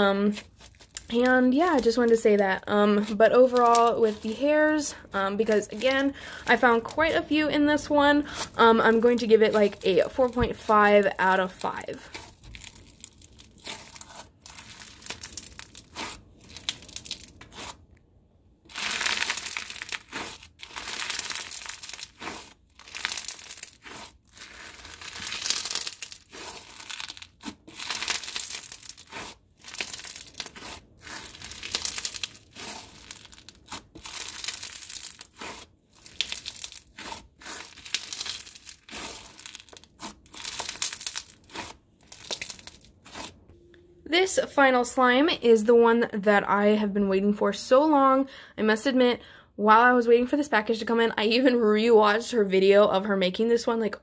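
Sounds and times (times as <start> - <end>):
crunchy slime being squeezed: 12.1 - 17.8, 18.7 - 43.4.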